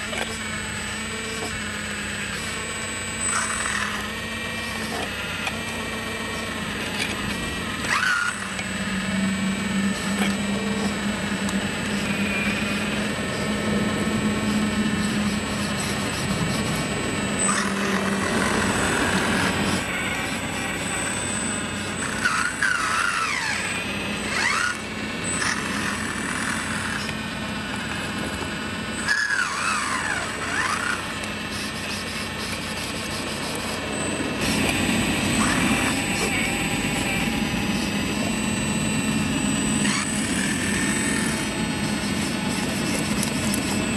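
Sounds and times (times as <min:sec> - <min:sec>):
hydraulic pump humming: 0:00.0 - 0:43.9
hydraulic valve squeals: 0:07.8 - 0:09.2, 0:14.4 - 0:27.1, 0:28.9 - 0:43.9.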